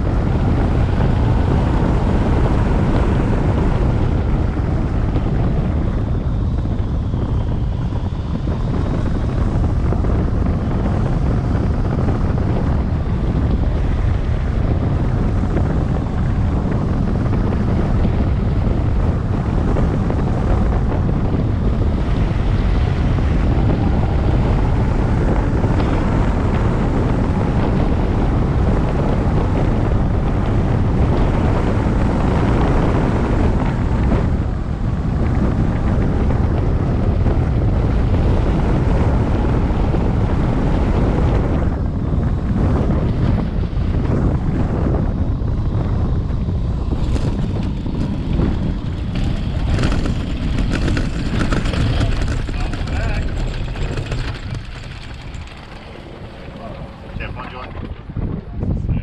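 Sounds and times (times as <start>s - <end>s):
wind buffeting microphone: 0.0s - 59.0s.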